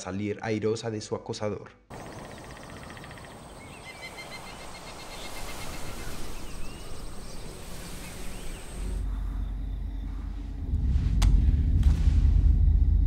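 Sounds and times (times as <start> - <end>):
small bird chirps: 1.9 - 10.1
high insect drone: 1.9 - 11.0
broad hiss: 4.1 - 9.0.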